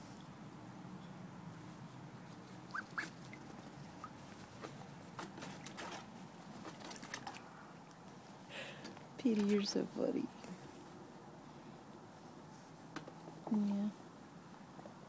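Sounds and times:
duckling peeping: 2.6s - 4.2s.

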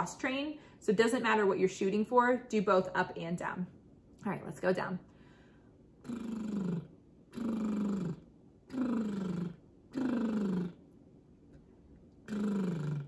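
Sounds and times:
woman's lip trills: 6.0s - 11.0s, 12.1s - 13.0s.

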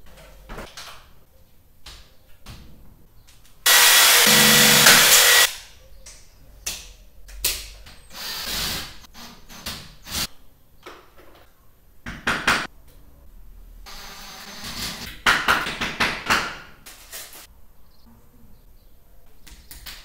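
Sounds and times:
cordless drill running: 3.7s - 5.5s.

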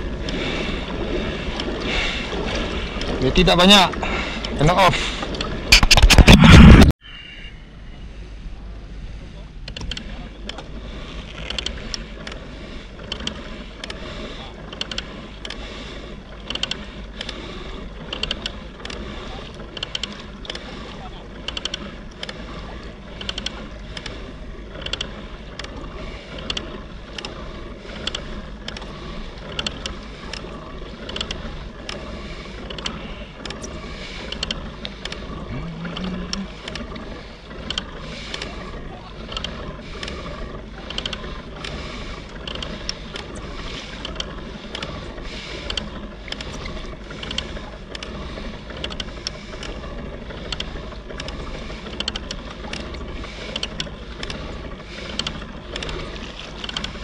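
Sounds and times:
water and wind wash: 0.0s - 6.8s
waves knocking against hull: 0.0s - 6.9s, 9.7s - 57.0s.

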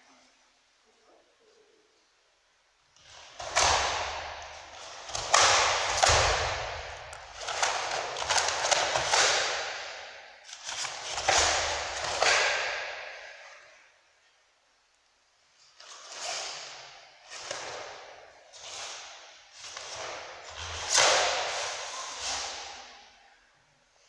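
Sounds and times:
bare feet thudding on mats: 3.1s - 9.9s
karate uniform snapping: 3.1s - 13.2s.

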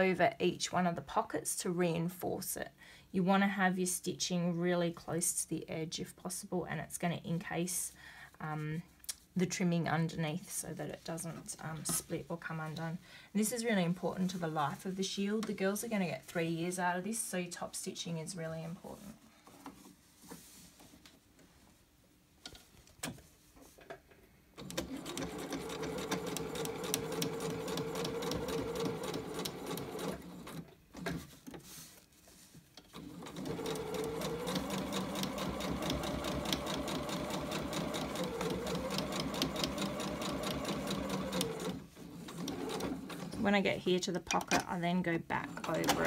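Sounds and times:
sewing machine stitching: 24.6s - 31.2s, 32.8s - 43.4s.

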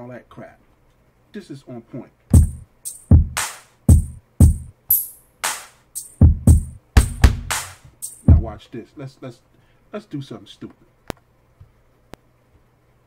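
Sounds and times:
kick drum hits: 2.3s - 4.7s, 6.2s - 7.6s, 8.3s - 8.5s
noisy backbeat hits: 2.3s - 8.5s.

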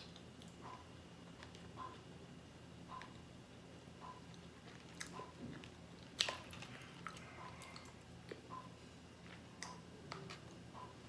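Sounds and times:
person chewing with crunches: 4.1s - 8.5s, 9.2s - 10.6s.

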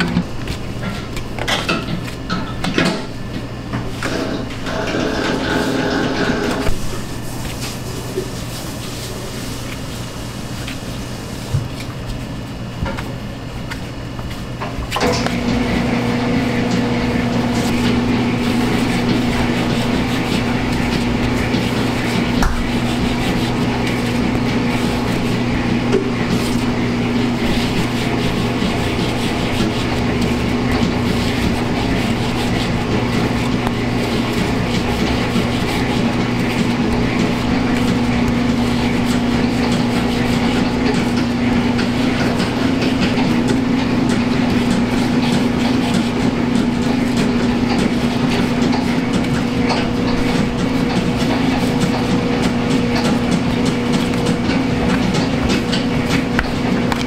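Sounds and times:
electric machine hum: 0.0s - 57.0s.

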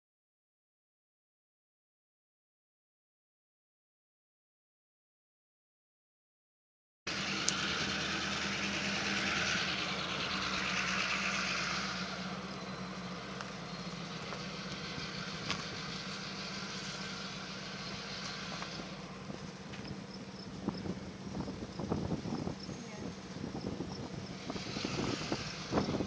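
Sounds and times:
low engine hum: 7.1s - 26.0s
rushing outdoor noise: 7.1s - 26.0s.

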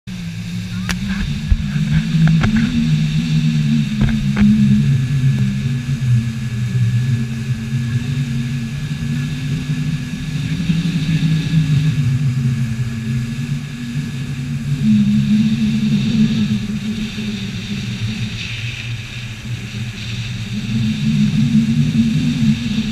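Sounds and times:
vehicle engine running: 0.1s - 22.9s.

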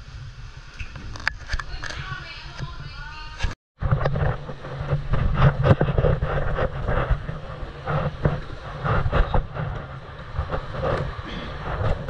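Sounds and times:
wind rumble on microphone: 0.0s - 12.0s
sea waves breaking on rocks: 3.8s - 12.0s.

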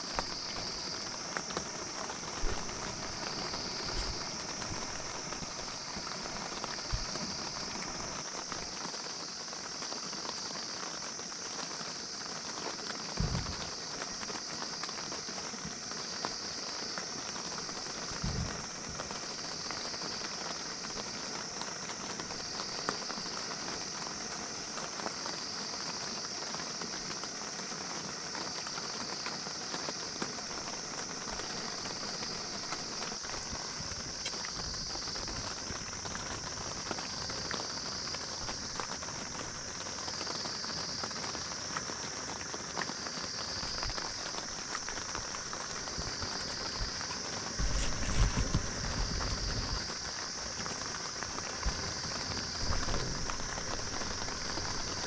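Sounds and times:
rain on a tent: 0.0s - 55.0s
raindrop ticks: 0.0s - 55.0s
low thump: 13.2s - 13.6s.

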